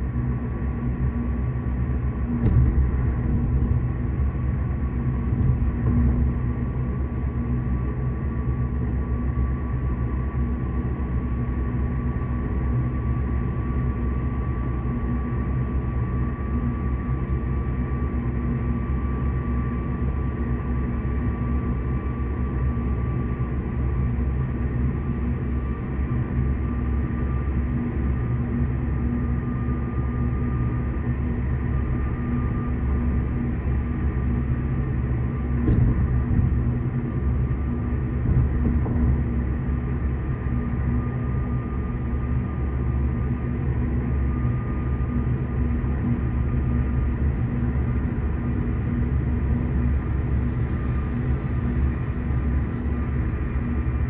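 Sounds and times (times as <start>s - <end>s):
road and tyre rumble: 0.0s - 9.3s, 29.6s - 54.0s
faint whine: 0.0s - 54.0s.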